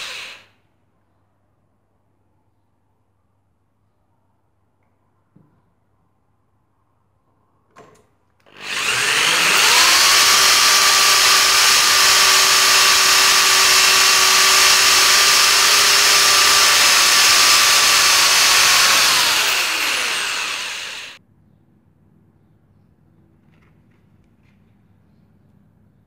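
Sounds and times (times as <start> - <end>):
electric drill boring into metal: 0.0 - 0.5, 8.5 - 21.2.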